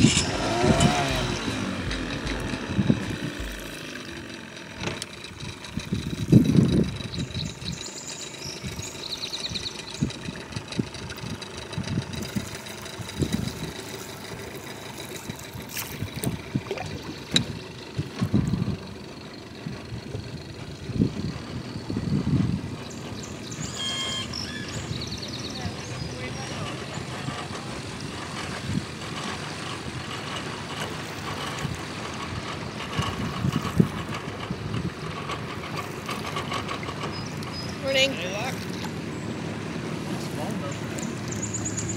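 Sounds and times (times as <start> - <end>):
wind noise: 0.0 - 3.8, 5.8 - 7.7, 19.6 - 22.8
canoe paddle strokes: 0.0 - 4.1, 12.2 - 18.6, 26.7 - 41.5
low thumps: 0.0 - 4.2
outboard motor humming: 0.0 - 41.9
trickling water: 5.4 - 21.8, 25.6 - 41.9.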